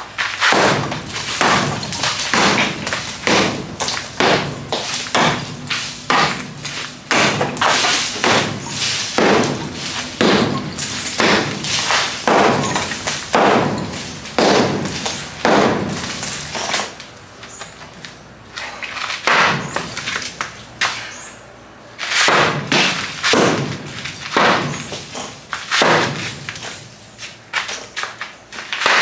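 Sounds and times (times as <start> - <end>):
sledgehammer pounding concrete wall: 0.4 - 17.0, 19.2 - 20.2, 22.2 - 26.8.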